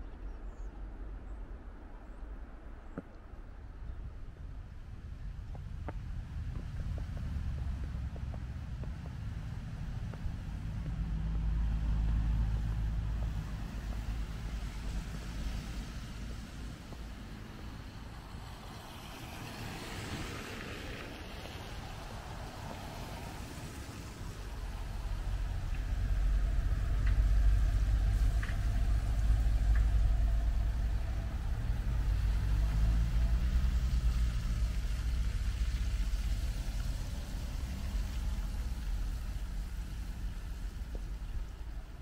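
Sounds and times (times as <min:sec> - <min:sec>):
deep rumble: 0:00.0 - 0:18.6, 0:21.8 - 0:42.0
vehicles driving on snow: 0:00.0 - 0:42.0.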